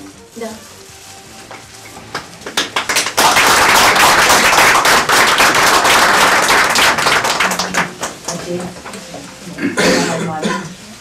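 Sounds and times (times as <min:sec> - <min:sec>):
people applauding: 0:02.1 - 0:08.9.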